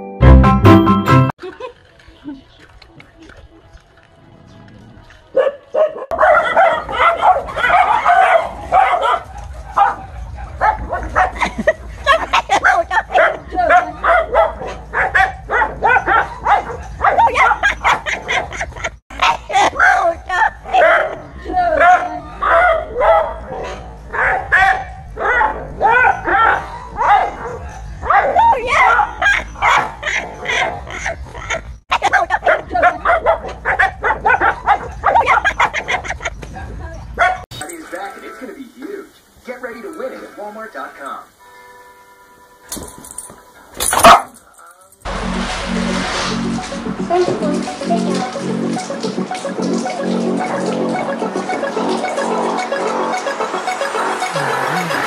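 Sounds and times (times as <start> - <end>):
dog barking in high yaps: 5.4 - 11.4, 12.4 - 18.2, 19.1 - 21.2, 21.8 - 31.1, 31.9 - 36.1, 43.9 - 44.4.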